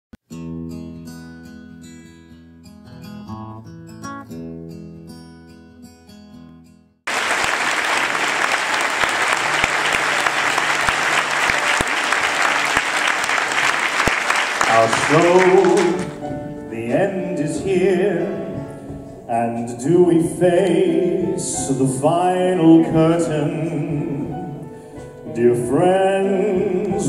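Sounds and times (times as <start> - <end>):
audience applause: 7.1 - 16.2
soft instrumental music: 14.7 - 27.0.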